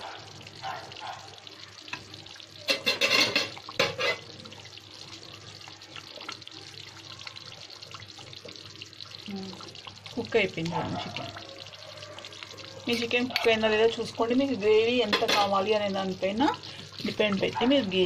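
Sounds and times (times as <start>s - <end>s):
ladle stirring thick gravy: 0.3s - 14.1s
ladle scraping and knocking pot: 2.7s - 4.3s.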